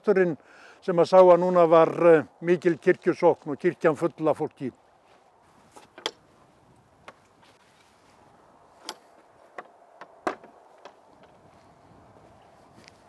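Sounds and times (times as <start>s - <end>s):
wooden gate latch clicking: 6.0s - 6.2s, 8.8s - 11.4s
footsteps on paved path: 7.1s - 13.0s.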